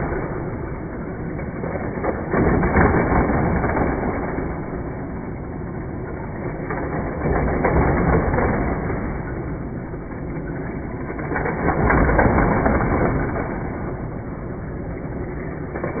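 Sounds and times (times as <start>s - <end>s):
toy cars running on plastic track: 0.0s - 16.0s.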